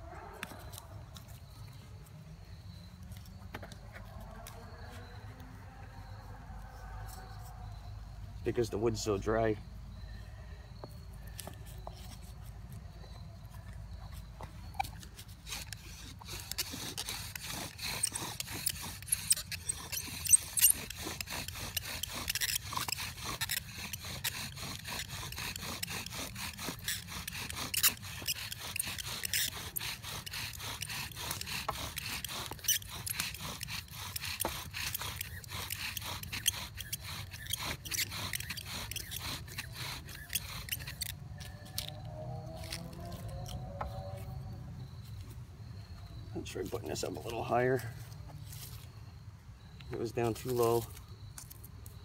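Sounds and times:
bow drill scraping wood: 10.7 - 49.0, 49.6 - 52.0.

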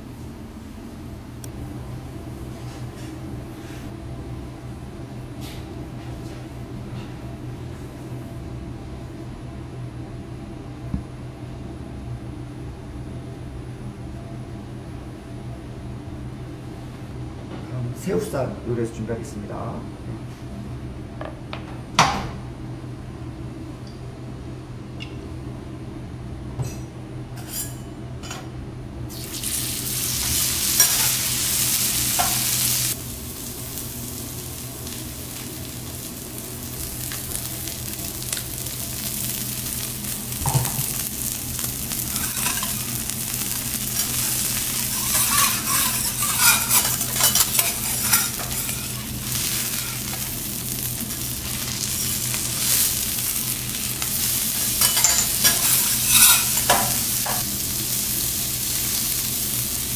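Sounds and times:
steak sizzling on a griddle: 29.1 - 59.9
spatula clicking and scraping metal: 42.1 - 42.9, 44.0 - 50.3, 54.8 - 57.4.

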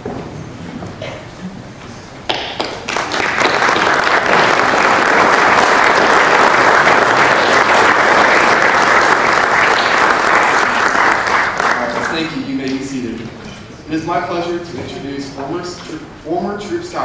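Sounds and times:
audience applauding: 2.3 - 12.4.

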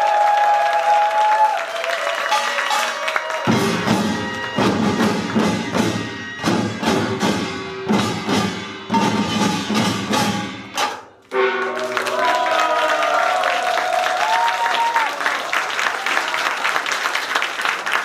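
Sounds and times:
percussion ensemble drums and gongs: 2.2 - 12.4.

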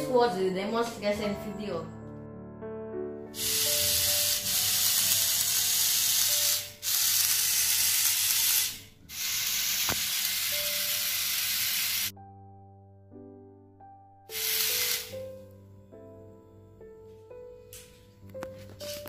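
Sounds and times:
soft background music: 0.0 - 19.0
small motor whirring: 3.4 - 12.1, 14.4 - 15.1.

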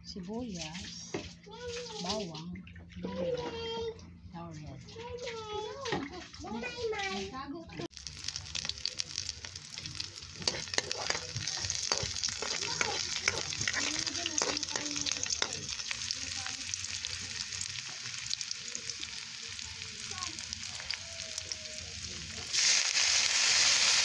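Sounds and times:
onion sizzling in hot oil: 7.9 - 24.0
spatula scraping a pan: 9.7 - 16.2.

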